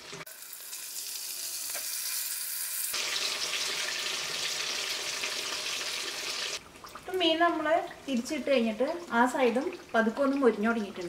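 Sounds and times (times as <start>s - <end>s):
fish sizzling in hot oil: 0.0s - 7.2s.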